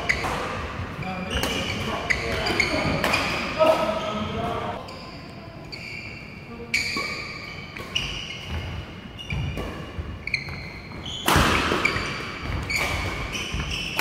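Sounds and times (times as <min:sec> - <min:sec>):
shoes squeaking on floor: 0:00.0 - 0:14.0.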